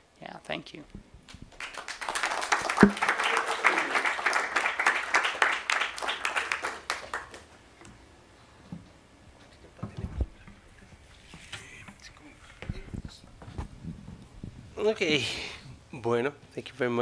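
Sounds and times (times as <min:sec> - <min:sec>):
audience applauding: 0:01.5 - 0:07.5.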